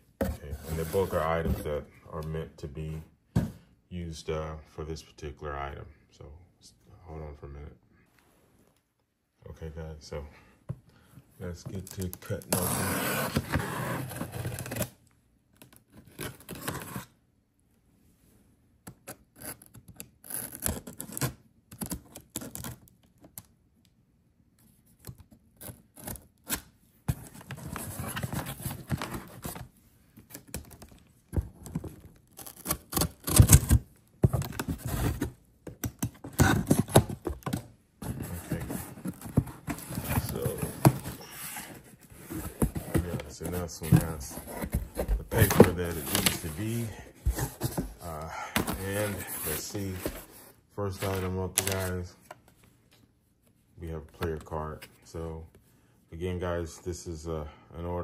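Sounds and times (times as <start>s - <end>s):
cardboard box scraping and tearing: 12.5s - 14.9s, 38.1s - 48.0s.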